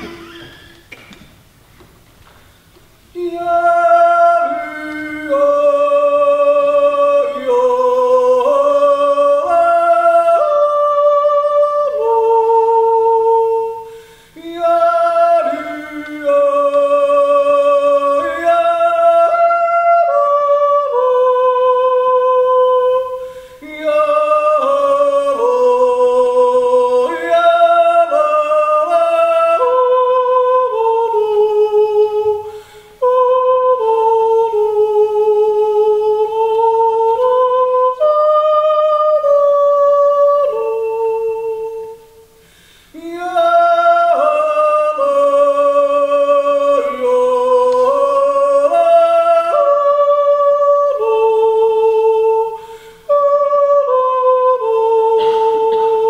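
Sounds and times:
man yodeling: 3.2s - 42.4s.

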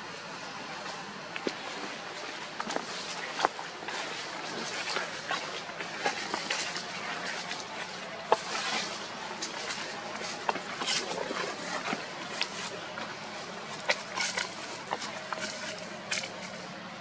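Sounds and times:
steady hiss: 0.0s - 17.0s.

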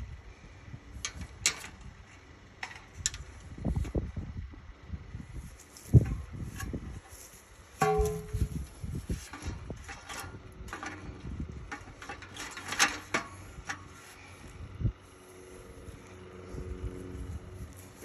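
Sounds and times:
metal fence knocking and rattling: 7.8s - 13.9s.

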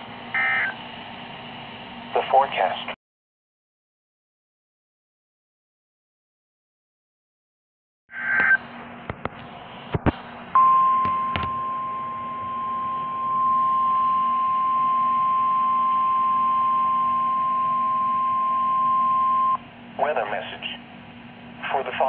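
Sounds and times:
steady high alarm beep: 0.4s - 0.8s, 10.6s - 19.6s.

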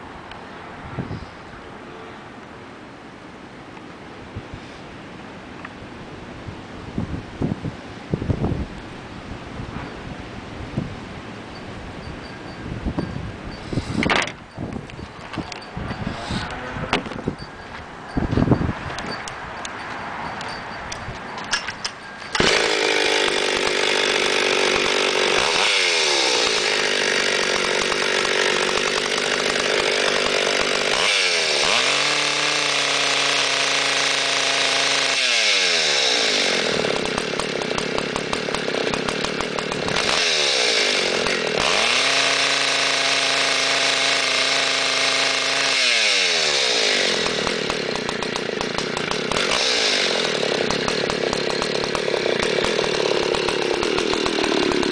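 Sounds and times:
chainsaw starting and revving: 22.2s - 54.9s.

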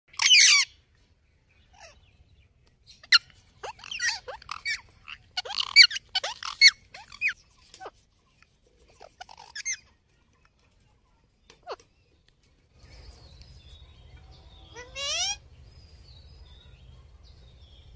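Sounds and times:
parakeets calling: 0.1s - 0.8s, 1.6s - 2.0s, 2.9s - 7.9s, 8.9s - 9.9s, 12.9s - 15.5s.

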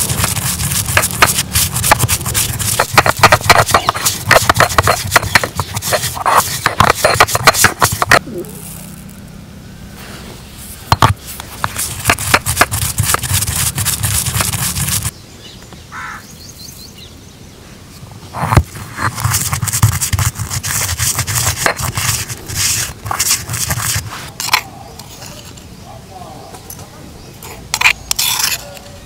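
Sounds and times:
seeds being ground: 0.0s - 9.2s, 10.0s - 15.1s, 18.4s - 25.6s.

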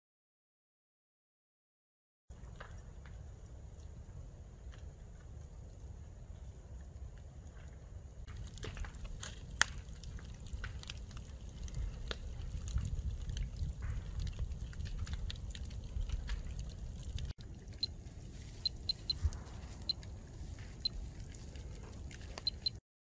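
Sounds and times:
burning wood crackling: 2.3s - 22.8s
wind rumble on microphone: 2.4s - 22.8s
geiger counter beeps: 18.6s - 20.0s, 22.4s - 22.8s.

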